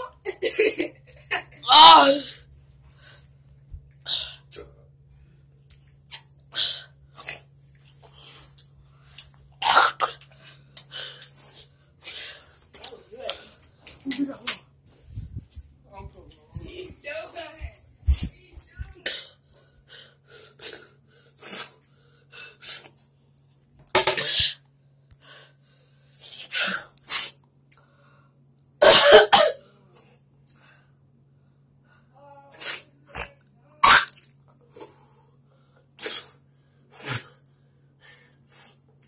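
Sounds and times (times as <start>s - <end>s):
faint low hum: 0.0s - 39.0s
child coughing hard: 9.6s - 10.2s, 28.8s - 29.7s, 33.8s - 34.2s.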